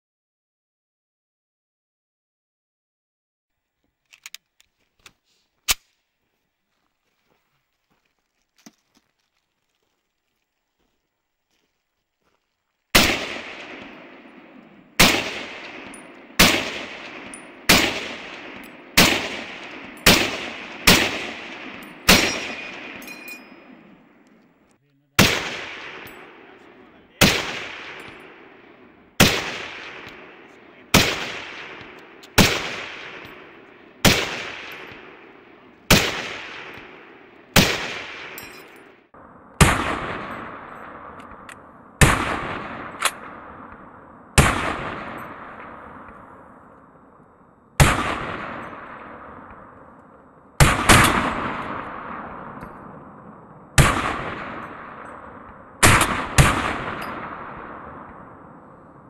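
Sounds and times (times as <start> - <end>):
rifle shots with echo: 12.9 - 59.0.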